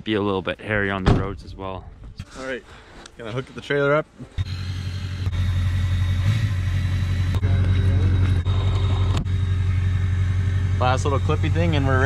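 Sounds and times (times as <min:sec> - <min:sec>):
engine idling: 0:04.4 - 0:12.0.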